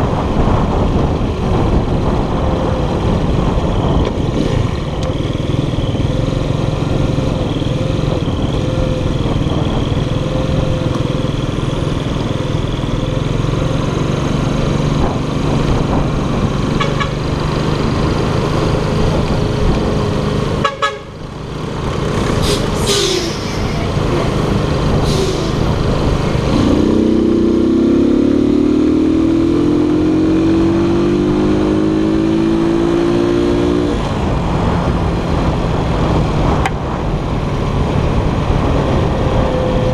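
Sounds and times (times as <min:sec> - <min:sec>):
wind and road noise: 0:00.0 - 0:39.9
scooter engine running: 0:04.2 - 0:22.3.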